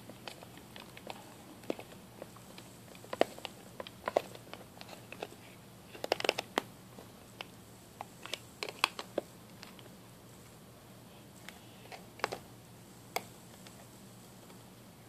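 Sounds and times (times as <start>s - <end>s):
plastic clicks and crackles: 0.1s - 6.7s, 7.4s - 9.9s, 11.4s - 12.4s.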